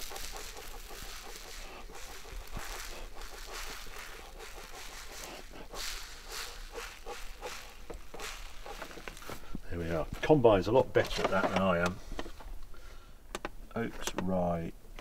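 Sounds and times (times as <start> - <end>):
person blowing breathy puffs: 0.0 - 9.6.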